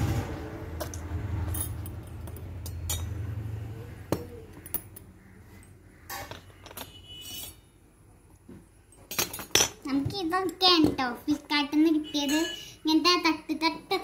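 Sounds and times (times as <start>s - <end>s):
small metal utensils clinking: 0.8s - 3.3s, 9.0s - 9.8s.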